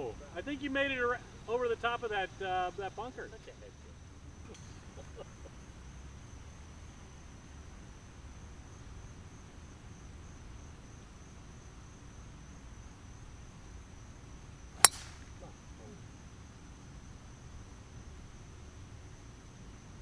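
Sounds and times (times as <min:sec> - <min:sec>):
golf club striking ball: 0:14.8 - 0:15.4.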